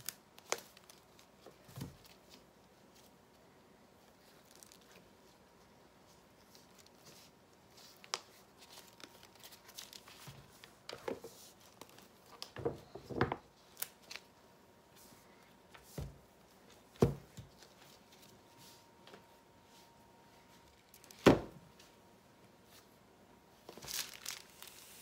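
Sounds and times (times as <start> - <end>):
silicone liner rustling and peeling: 4.0 - 12.6.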